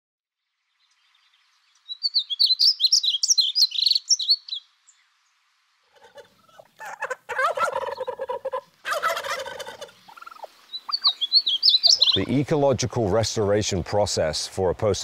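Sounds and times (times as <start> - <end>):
bird high twittering song: 0.4 - 6.6, 9.6 - 12.4.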